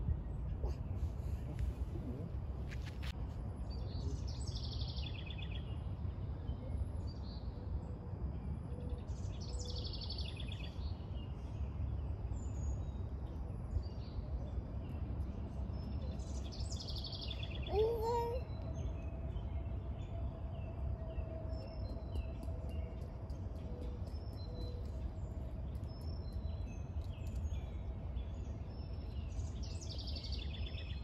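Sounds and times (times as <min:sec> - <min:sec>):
steady low rumble: 0:00.0 - 0:16.8.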